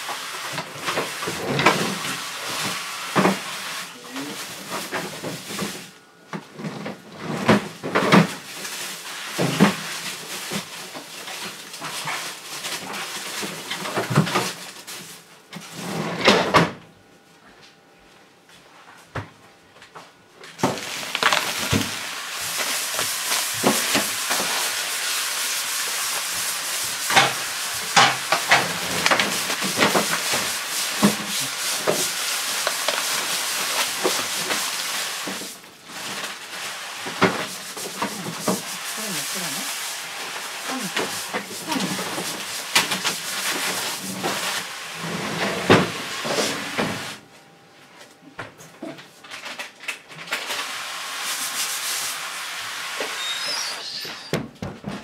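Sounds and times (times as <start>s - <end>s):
pressurised sprayer hissing: 21.6s - 35.6s, 36.5s - 44.6s.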